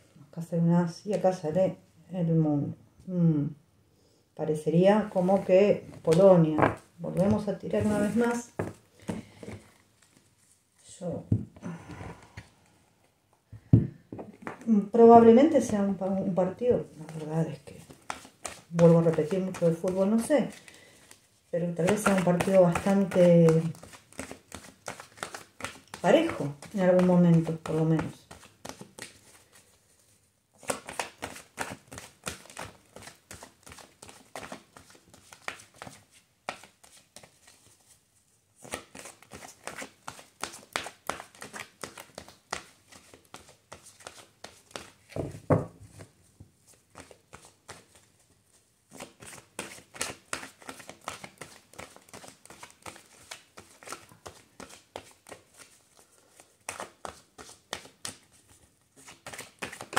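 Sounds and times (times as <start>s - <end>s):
cards being shuffled: 5.3s - 10.4s, 16.9s - 38.0s, 38.6s - 48.1s, 48.9s - 59.9s.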